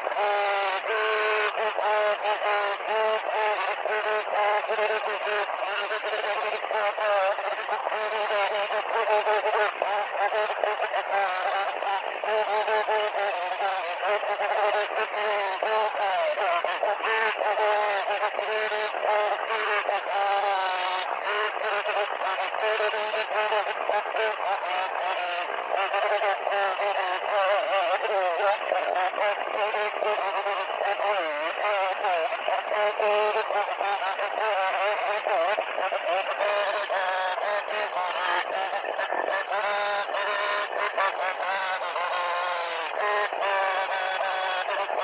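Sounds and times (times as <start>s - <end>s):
chainsaw cutting wood: 0.0s - 45.0s.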